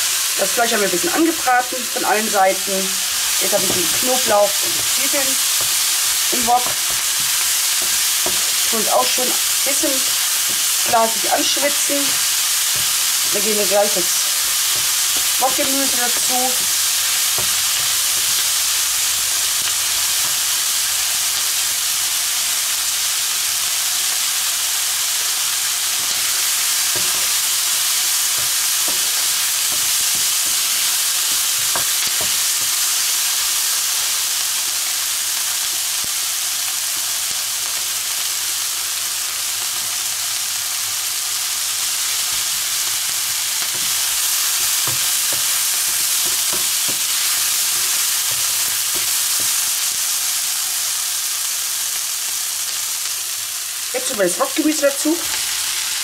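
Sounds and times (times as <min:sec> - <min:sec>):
onions sizzling in hot oil: 0:00.0 - 0:56.0
spatula knocking and scraping pan: 0:03.4 - 0:08.6, 0:10.1 - 0:18.4, 0:26.0 - 0:32.8, 0:43.6 - 0:49.6.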